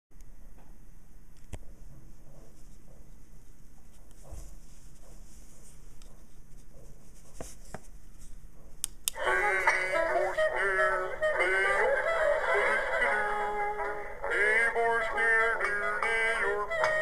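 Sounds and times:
tinny music with sung voice: 9.1s - 17.0s.

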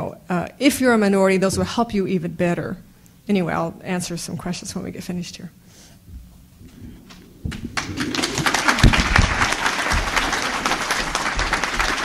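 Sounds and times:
audience applauding: 7.5s - 12.0s.

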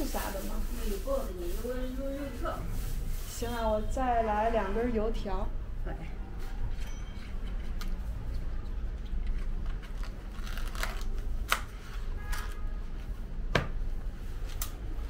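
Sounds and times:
plastic bag crinkling: 9.5s - 11.4s.

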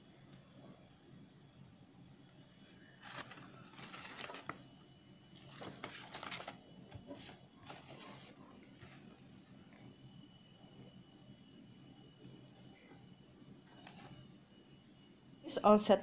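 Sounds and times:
paper rustling: 2.6s - 4.7s, 5.4s - 9.4s, 13.6s - 14.2s.

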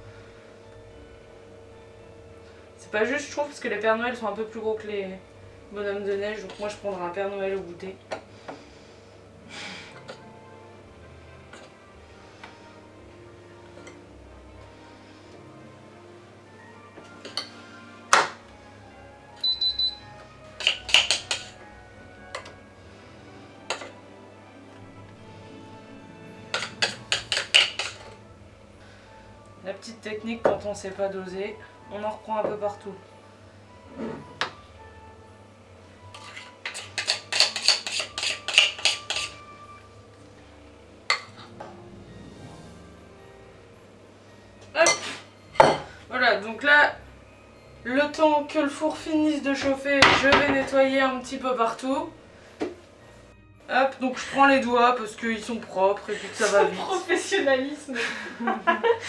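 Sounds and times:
short high electronic beeps: 19.4s - 20.0s
spoon clinking against bowl and tray: 20.6s - 21.6s, 26.5s - 28.2s, 36.1s - 39.6s.

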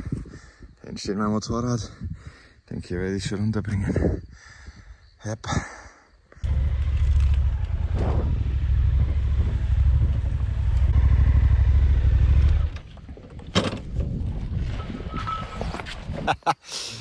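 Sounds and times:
motorcycle engine rumbling: 6.4s - 16.0s.

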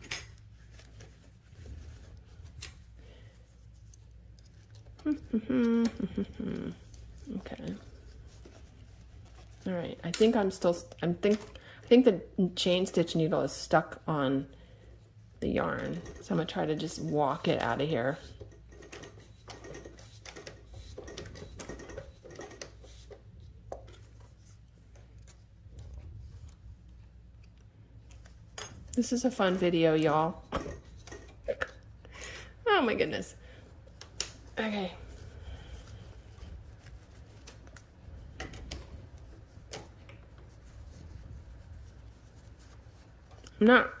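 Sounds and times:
paper and fabric rustling: 0.0s - 5.7s, 6.4s - 11.4s, 32.8s - 43.8s
low steady hum: 0.0s - 44.0s.

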